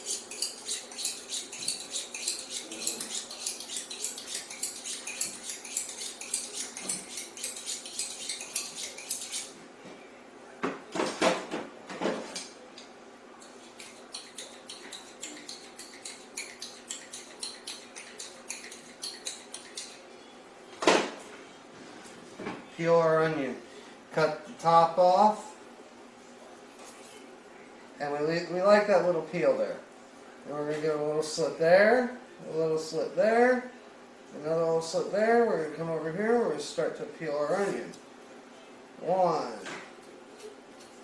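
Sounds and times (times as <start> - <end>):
knife scraping on sharpening rod: 0.0 - 9.6, 13.4 - 20.0.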